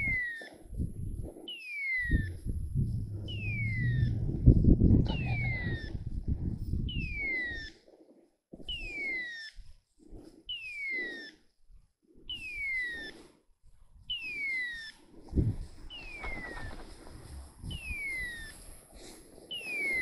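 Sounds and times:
soft low rustling: 0:02.1 - 0:07.2
beeper collar hawk-scream tone: 0:02.5 - 0:05.8.

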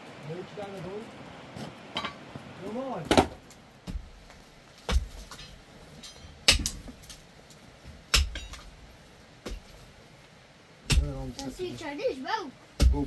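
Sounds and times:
pickaxe striking rocky dirt: 0:04.9 - 0:05.4, 0:08.1 - 0:08.6, 0:10.9 - 0:11.2.

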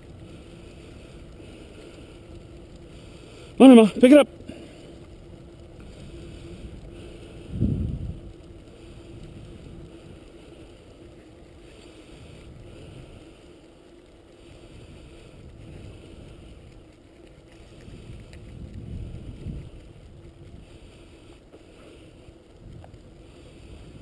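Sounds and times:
wheels rolling over gravel: 0:00.0 - 0:24.0
wind buffeting microphone: 0:05.0 - 0:13.4, 0:14.4 - 0:24.0.

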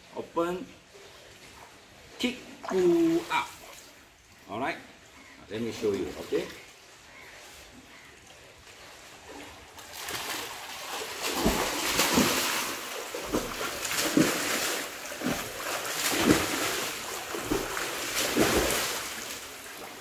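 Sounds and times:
water slapping: 0:08.5 - 0:20.0
swimmer splashing: 0:08.6 - 0:20.0.

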